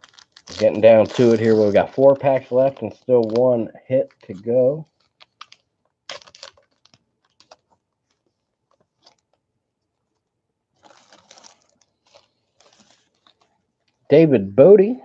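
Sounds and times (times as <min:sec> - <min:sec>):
wrapper crackling and crinkling: 0:00.0 - 0:14.1.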